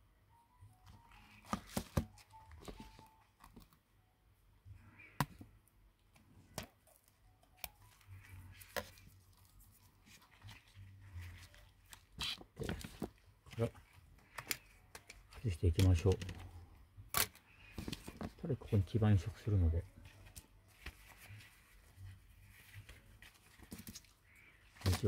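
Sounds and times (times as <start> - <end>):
soft rustling: 17.6 - 25.0.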